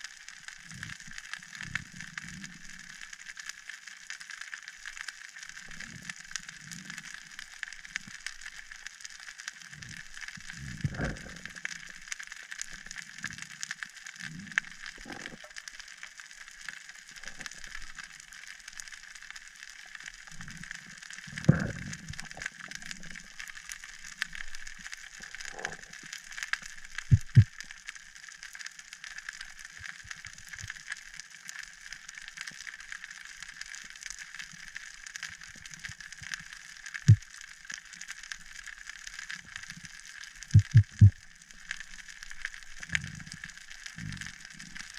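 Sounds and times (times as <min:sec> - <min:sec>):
underwater crackling clicks: 0:00.1 - 0:44.9
muffled water swooshes: 0:27.1 - 0:27.5.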